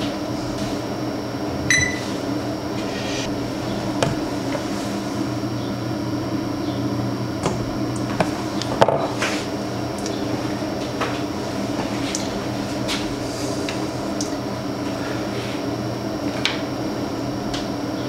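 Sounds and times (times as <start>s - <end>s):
steady hum: 0.0s - 18.0s
short high beep: 1.7s - 2.1s.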